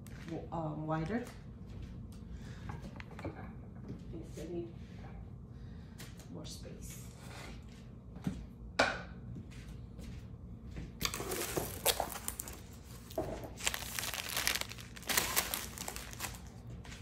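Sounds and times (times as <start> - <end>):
plastic bag crinkling: 11.0 - 16.8.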